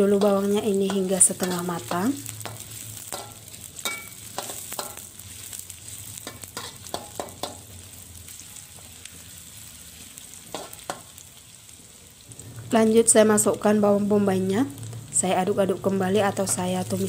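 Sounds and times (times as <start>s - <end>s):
shallots sizzling in hot oil: 0.0s - 17.0s
metal spatula scraping a wok: 0.1s - 8.8s.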